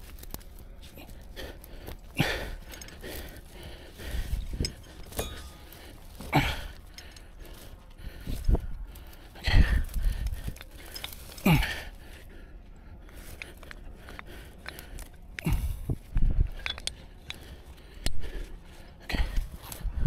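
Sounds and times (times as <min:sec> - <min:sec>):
brush rustling and crunching: 0:00.0 - 0:20.0
man breathing hard: 0:00.1 - 0:20.0
wind rumble on microphone: 0:04.0 - 0:05.1, 0:07.7 - 0:11.2, 0:15.4 - 0:20.0.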